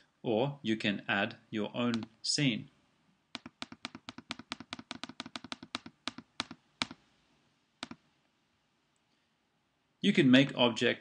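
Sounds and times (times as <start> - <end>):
computer mouse clicking: 1.9 - 2.1, 3.3 - 7.0, 7.8 - 8.0.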